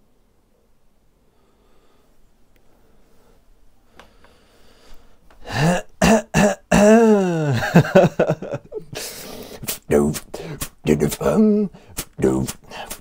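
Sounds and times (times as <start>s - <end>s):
breathy vocal hiss: 4.3s - 7.8s, 8.4s - 13.0s
man making vocal clicks: 9.6s - 13.0s.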